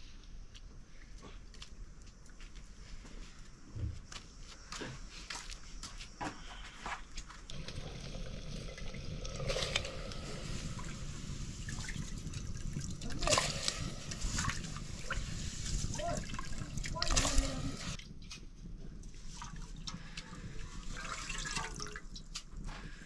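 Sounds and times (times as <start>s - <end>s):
water trickling and splashing: 7.5s - 18.0s, 19.0s - 23.0s.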